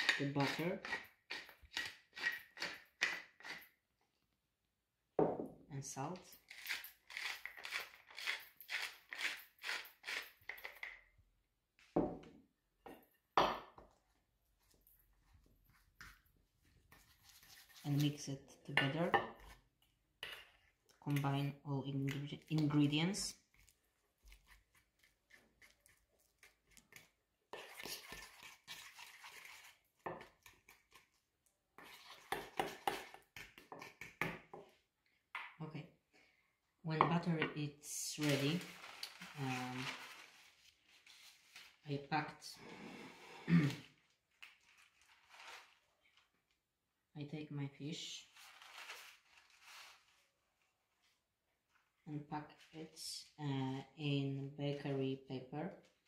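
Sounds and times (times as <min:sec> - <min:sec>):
metal utensil scraping bowl: 0:00.0 - 0:03.7, 0:31.8 - 0:34.2
spice mill grinding: 0:06.5 - 0:10.9.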